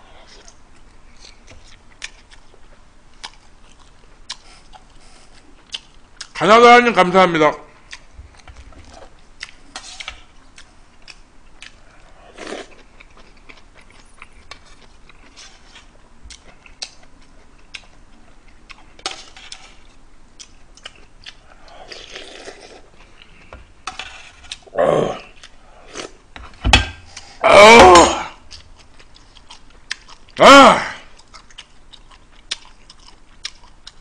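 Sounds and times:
chewing: 0.2 - 6.4, 7.8 - 23.6, 28.5 - 30.4, 31.1 - 34.0
loud vocal exclamation: 24.7 - 25.3, 27.4 - 28.4, 30.4 - 31.1.

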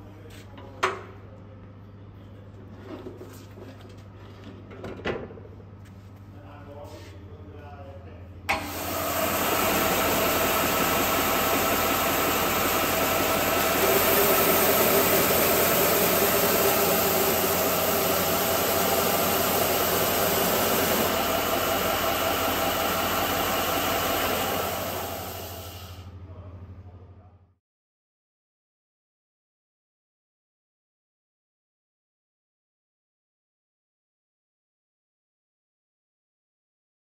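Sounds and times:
sander motor and belt running: 8.5 - 26.0.

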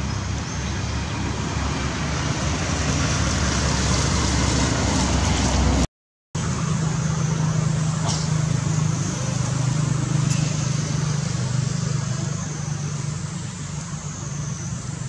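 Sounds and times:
low outdoor hum: 6.4 - 15.0.

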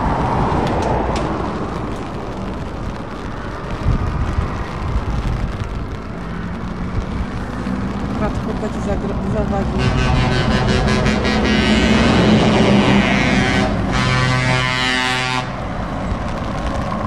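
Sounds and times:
wind buffeting microphone: 0.0 - 17.0
truck diesel engines: 4.9 - 17.0.

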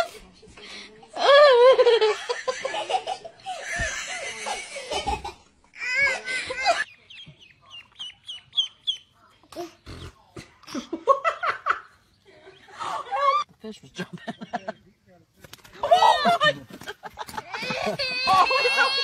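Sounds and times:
people laughing: 1.2 - 7.4, 10.6 - 13.4, 14.0 - 14.9, 15.7 - 19.0
ducklings peeping: 6.9 - 9.2.

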